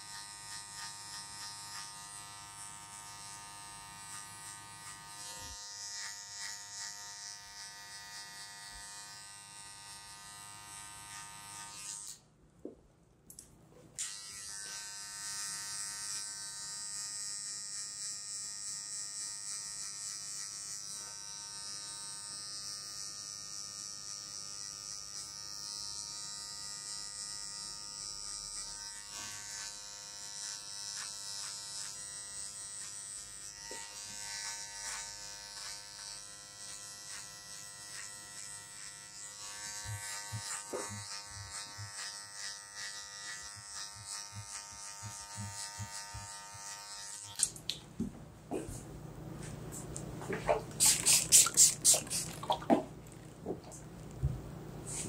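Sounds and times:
hair clipper buzzing: 0:00.0 - 0:12.3, 0:14.0 - 0:55.0
soft low thumps: 0:52.6 - 0:54.8.

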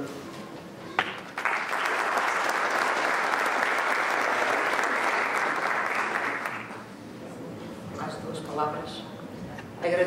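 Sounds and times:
audience applauding: 0:01.0 - 0:06.8.

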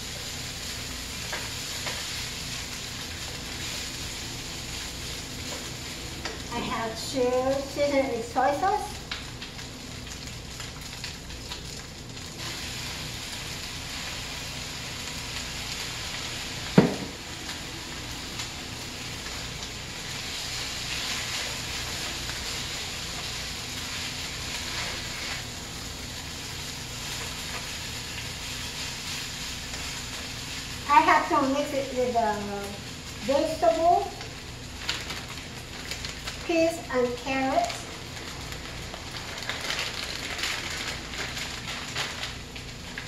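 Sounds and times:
rice sizzling in a pan: 0:00.0 - 0:43.0
sharp knock: 0:16.8 - 0:17.1.

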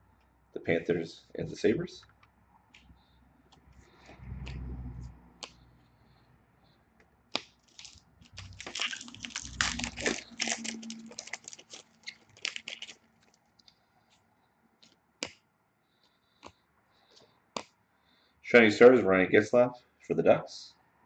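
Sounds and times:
wrapper tearing and crinkling: 0:07.6 - 0:13.4.

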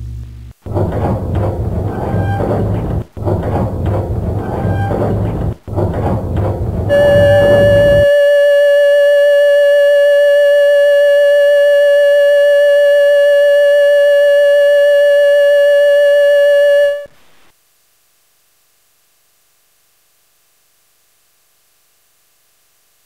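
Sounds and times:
steady electronic tone: 0:06.8 - 0:17.1.

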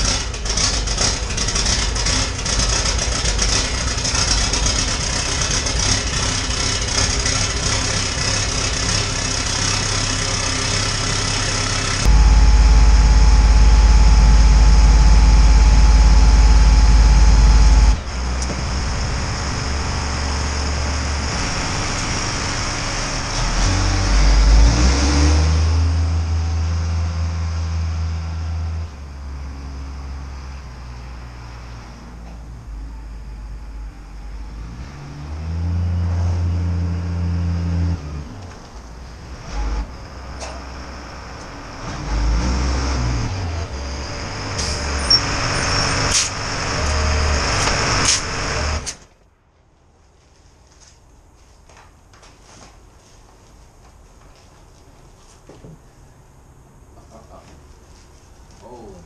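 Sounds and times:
truck diesel engine idling: 0:00.0 - 0:23.3.

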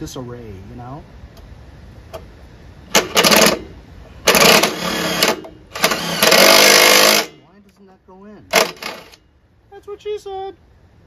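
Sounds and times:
cordless power driver: 0:04.3 - 0:07.3.

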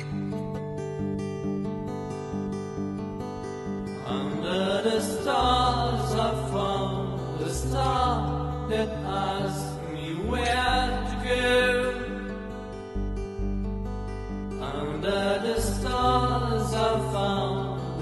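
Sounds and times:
guitar: 0:00.0 - 0:18.0
person singing: 0:04.0 - 0:12.6, 0:14.6 - 0:18.0
low bass line: 0:05.4 - 0:18.0.

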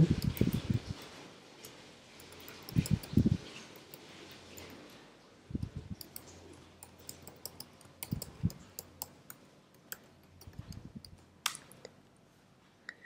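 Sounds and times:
computer keyboard typing: 0:00.0 - 0:01.2, 0:02.2 - 0:04.8, 0:05.9 - 0:11.2.

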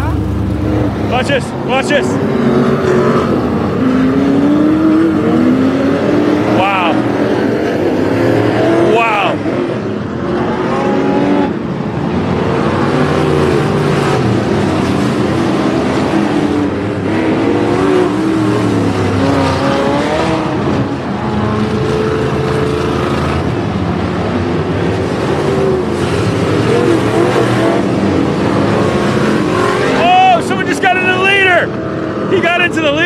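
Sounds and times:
race car engines revving: 0:00.0 - 0:33.0.

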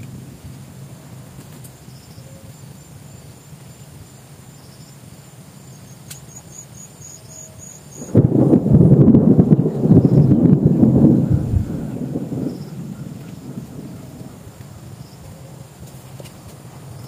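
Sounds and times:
insect chirping: 0:00.1 - 0:17.0
sudden loud low rumble: 0:08.0 - 0:15.0
low background rumble: 0:08.0 - 0:15.8.

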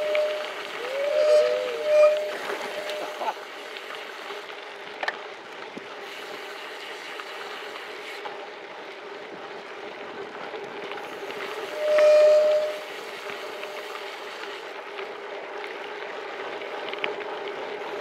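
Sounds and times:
bicycle disc brake squealing: 0:00.0 - 0:03.3, 0:11.8 - 0:13.6
bike tyres rolling: 0:00.0 - 0:18.0.

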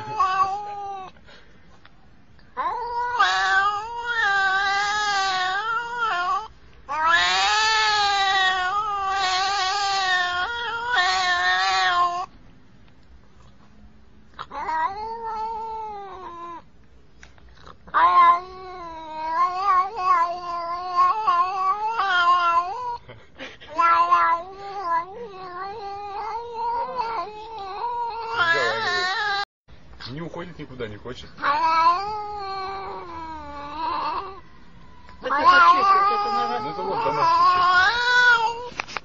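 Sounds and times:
cat meowing: 0:00.0 - 0:01.2, 0:02.6 - 0:12.3, 0:14.4 - 0:16.7, 0:17.8 - 0:23.0, 0:23.7 - 0:29.5, 0:31.4 - 0:34.4, 0:35.2 - 0:38.8.

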